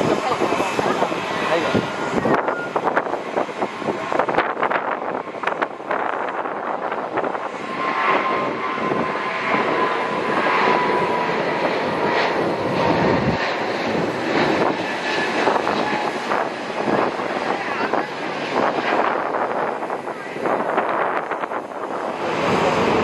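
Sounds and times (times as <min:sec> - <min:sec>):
jet engines roaring at takeoff: 0:00.0 - 0:23.0.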